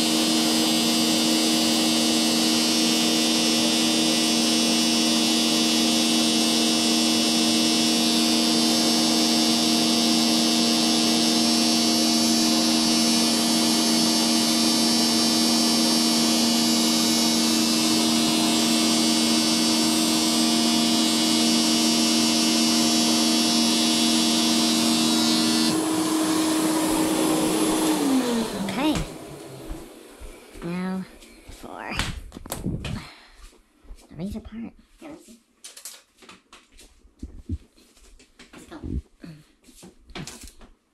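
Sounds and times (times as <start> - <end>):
vacuum cleaner motor whining: 0.0 - 31.9.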